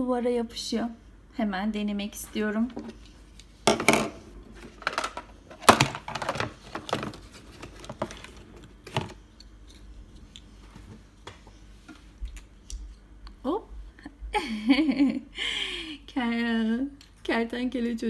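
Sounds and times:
plastic cases and boxes clattering: 3.7 - 9.2.

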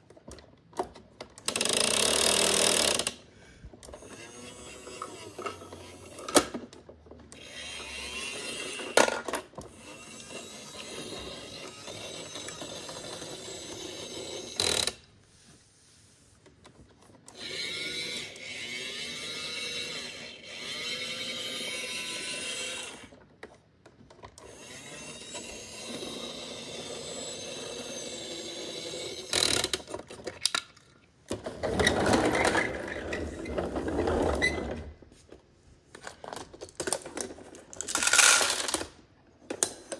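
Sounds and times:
toy motor whirring: 1.4 - 3.2, 3.8 - 6.6, 7.3 - 15.0, 17.3 - 23.2, 24.4 - 30.0, 37.1 - 38.9.

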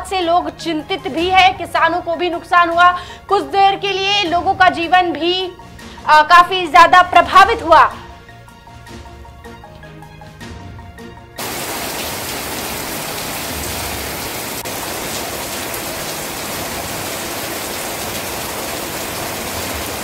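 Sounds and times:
background music: 0.0 - 20.0
heavy rain pouring: 11.4 - 20.0.

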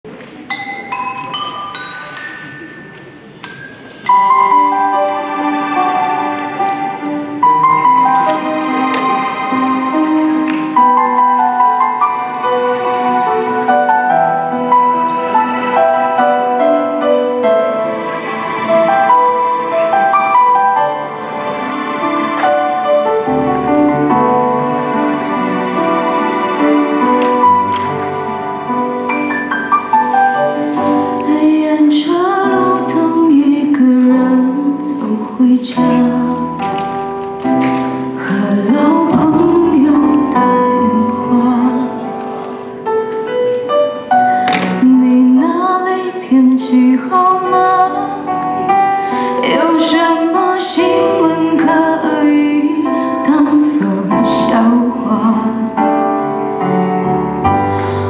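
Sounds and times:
recorded backing music: 0.0 - 58.0
woman singing pop ballad: 31.2 - 36.6, 38.2 - 42.0, 44.7 - 48.3, 49.4 - 55.7.

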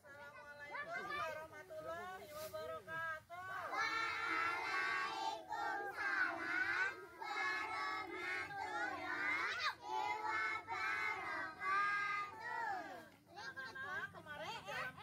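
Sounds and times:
children singing in chorus: 3.7 - 12.9.

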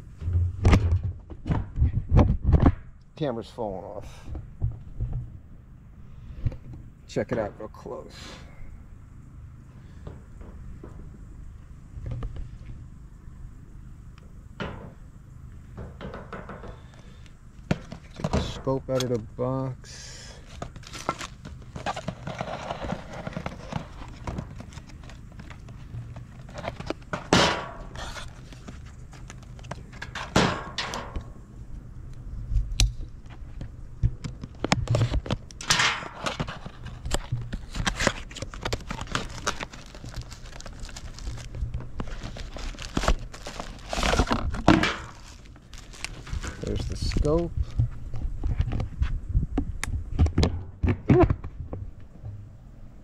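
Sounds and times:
steady low hum: 0.0 - 53.0
cardboard and plastic packaging rustling: 20.3 - 31.1, 33.2 - 49.1.

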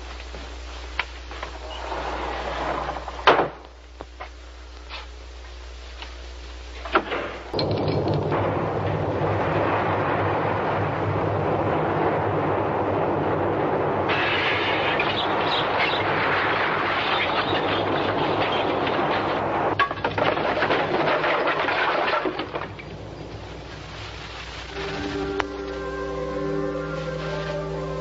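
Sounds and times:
sharp crack: 6.9 - 24.8
earthquake rumbling and rattling: 7.3 - 25.4.

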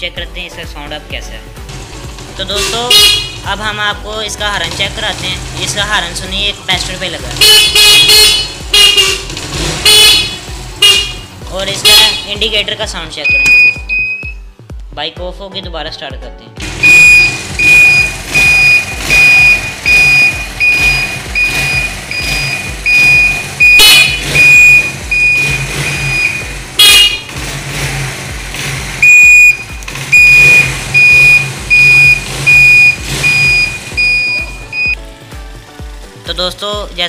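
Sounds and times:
motorcycle horn blasts: 2.4 - 3.5, 7.4 - 12.4, 16.8 - 27.3, 29.0 - 35.0
indicator beeper: 13.3 - 14.4, 16.8 - 27.2, 29.0 - 35.0.

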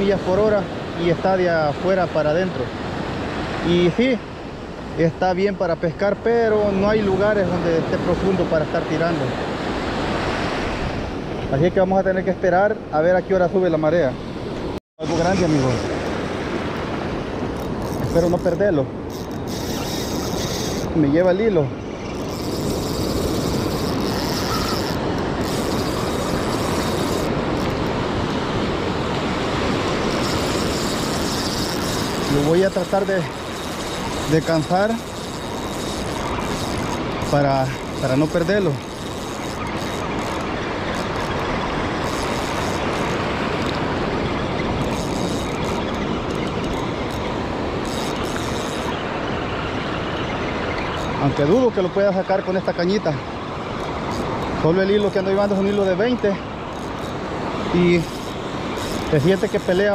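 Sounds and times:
wind on microphone: 14.1 - 51.5
breaking surf: 15.0 - 59.9
spinning reel whirring: 17.5 - 21.0, 22.0 - 28.0, 29.6 - 43.8, 44.5 - 49.0, 53.8 - 59.9.

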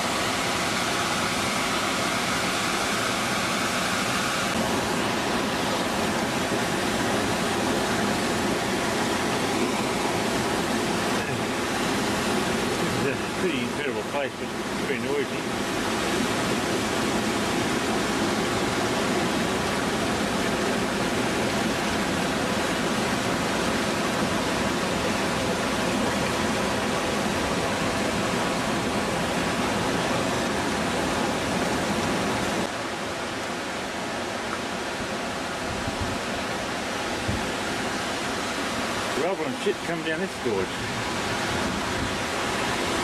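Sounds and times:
river rapids rushing: 0.0 - 43.0.

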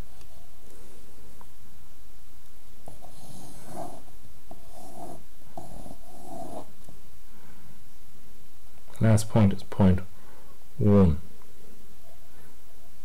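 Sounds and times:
pencil scratching on paper: 2.8 - 6.8.

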